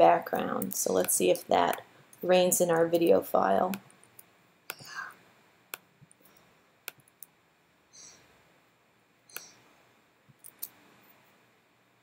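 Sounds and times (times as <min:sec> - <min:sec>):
computer mouse clicks: 0:09.3 - 0:09.6.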